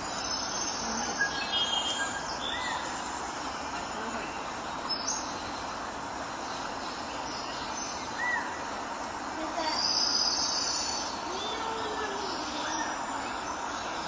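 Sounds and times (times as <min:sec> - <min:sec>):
background ambience: 0:00.0 - 0:14.0.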